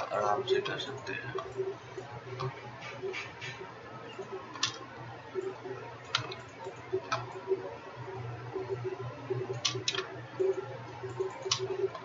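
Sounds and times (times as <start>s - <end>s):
low hum: 0.0s - 12.0s
computer mouse clicking: 0.6s - 7.5s, 9.4s - 12.0s.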